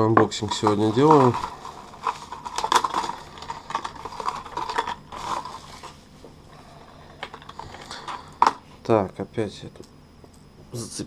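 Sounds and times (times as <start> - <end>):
bubble wrap crinkling: 0.3 - 6.1.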